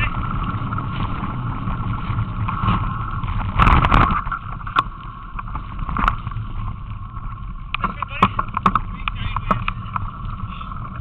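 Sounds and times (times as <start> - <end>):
bike tyres rumbling on trail: 0.0 - 11.0
wind on microphone: 0.0 - 11.0
bike knocks and rattles: 2.4 - 11.0.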